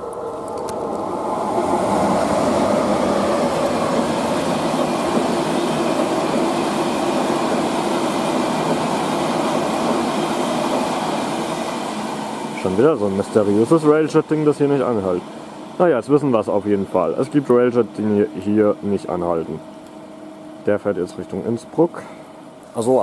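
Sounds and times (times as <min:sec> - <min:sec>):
passenger train passing at speed: 0:00.0 - 0:22.6.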